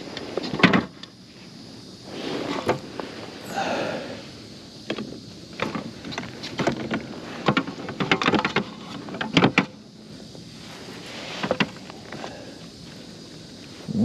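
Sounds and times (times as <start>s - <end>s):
knocks and rattles on a kayak: 0.3s - 1.0s, 4.8s - 9.8s, 11.4s - 11.9s.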